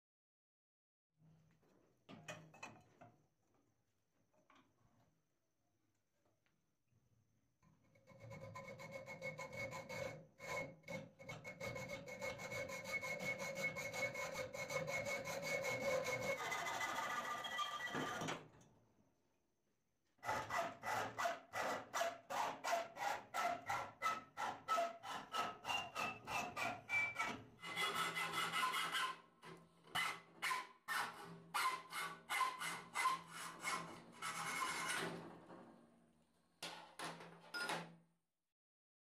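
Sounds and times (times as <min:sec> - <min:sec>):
hacksaw cutting metal tube: 0:08.6 - 0:18.0, 0:20.2 - 0:35.2.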